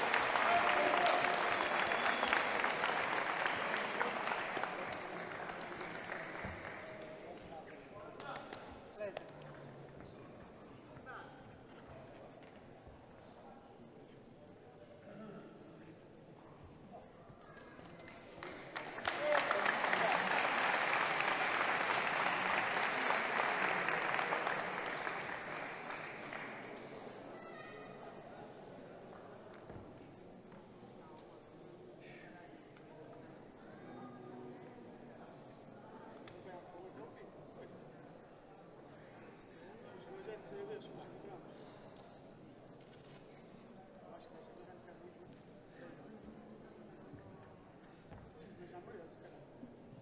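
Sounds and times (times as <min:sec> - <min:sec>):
crowd applauding: 0:00.0 - 0:07.6, 0:17.8 - 0:27.3.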